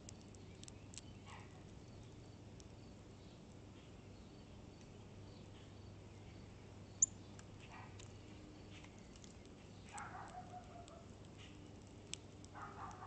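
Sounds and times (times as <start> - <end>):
bird pecking and cracking seed: 0.0 - 2.8, 7.3 - 13.0.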